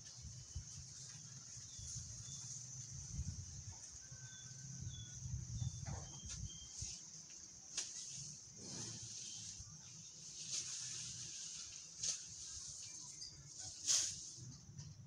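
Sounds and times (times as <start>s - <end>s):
wind rumble on microphone: 1.6s - 7.0s
bird chirps: 4.3s - 6.9s.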